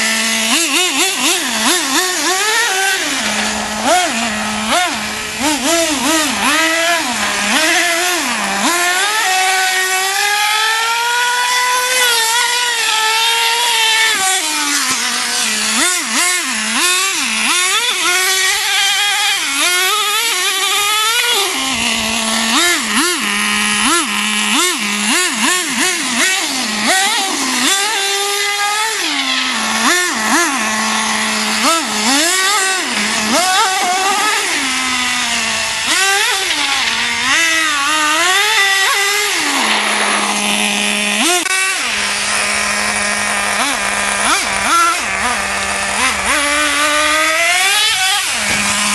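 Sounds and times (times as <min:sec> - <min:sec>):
rc truck engine revving: 0:00.0 - 0:48.9.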